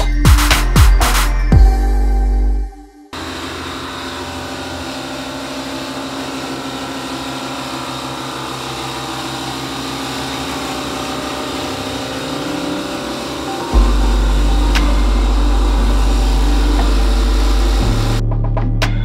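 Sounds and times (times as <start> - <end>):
electric sander on wood: 3.2 - 18.2.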